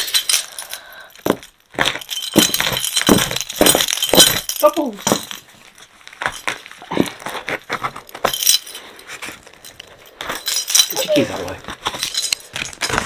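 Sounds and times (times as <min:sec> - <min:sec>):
keys jangling: 0:00.0 - 0:05.5, 0:08.0 - 0:08.9, 0:09.6 - 0:13.0.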